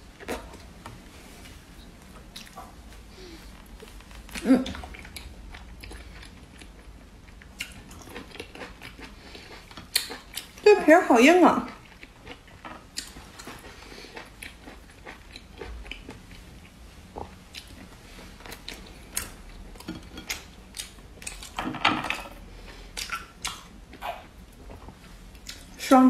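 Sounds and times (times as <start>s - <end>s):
chewing and biting sausage: 4.3s - 10.6s, 11.8s - 19.7s, 22.7s - 25.7s.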